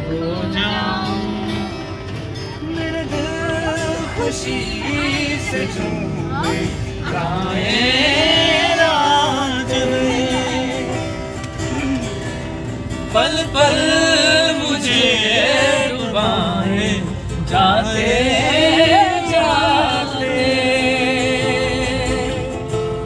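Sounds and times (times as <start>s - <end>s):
men singing together: 0.0s - 1.8s, 2.7s - 23.0s.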